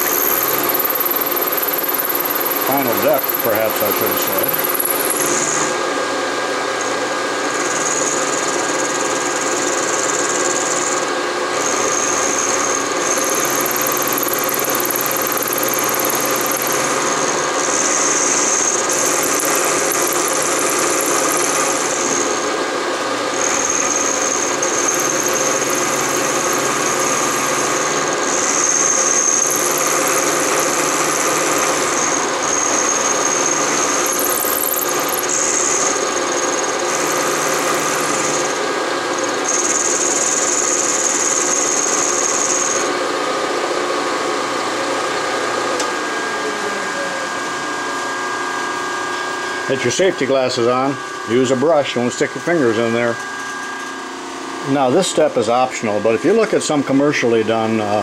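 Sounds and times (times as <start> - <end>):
high-pitched cutter squeal: 0.0 - 5.8, 7.6 - 22.4, 23.3 - 42.9
milling machine drone: 0.0 - 58.0.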